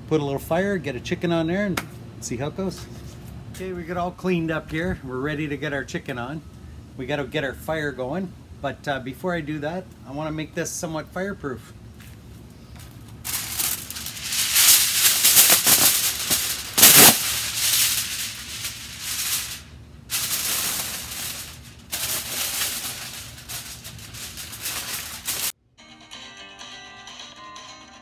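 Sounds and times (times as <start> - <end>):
aluminium foil crinkling: 12.8 - 25.6.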